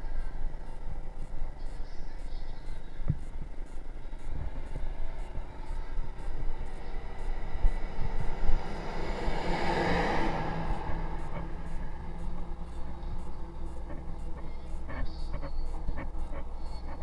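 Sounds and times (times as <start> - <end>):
motor vehicle passing: 6.1 - 16.5.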